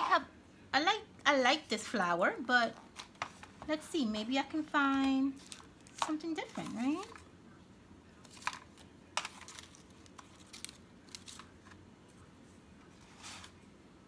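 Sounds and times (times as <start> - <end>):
paper rustling in plastic box: 8.2 - 11.8.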